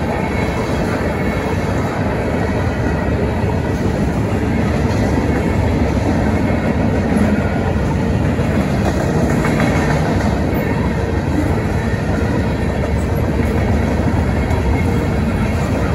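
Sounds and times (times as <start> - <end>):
train wheels on rails: 0.0 - 15.9.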